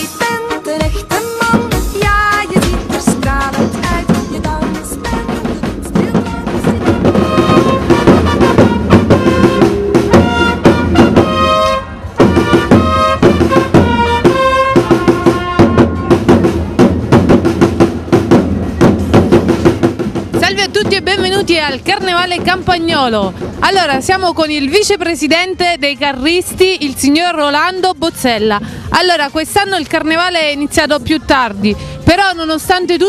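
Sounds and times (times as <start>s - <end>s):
side drums drumming: 0.2s - 25.5s
trumpet fanfare: 6.0s - 16.5s.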